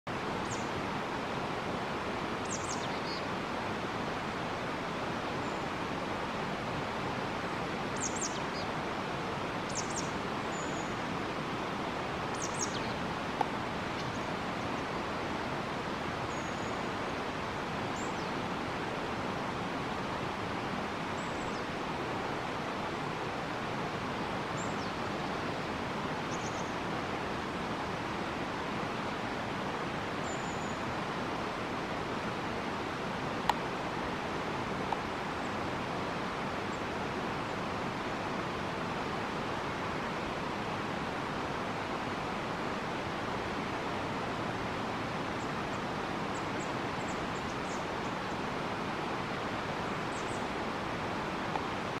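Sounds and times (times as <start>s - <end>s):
steady outdoor hiss: 0.1s - 52.0s
small bird chirping: 2.4s - 3.2s, 9.7s - 10.9s.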